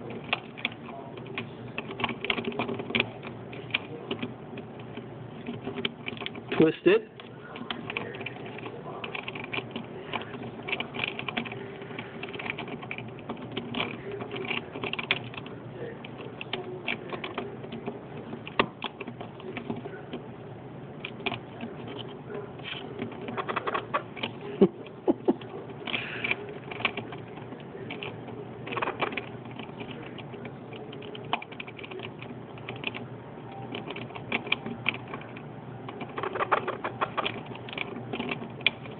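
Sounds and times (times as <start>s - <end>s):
parrot beak clicking on plastic: 36.0s - 37.9s.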